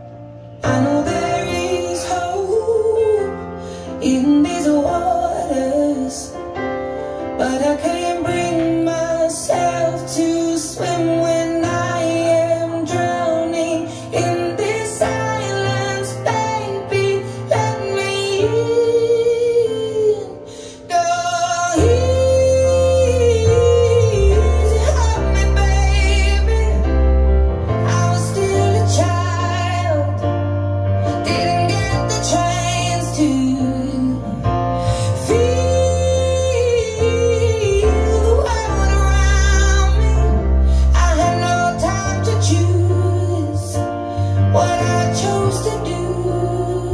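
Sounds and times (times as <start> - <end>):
deep bass line: 21.7 - 46.9
woman singing: 35.2 - 43.8.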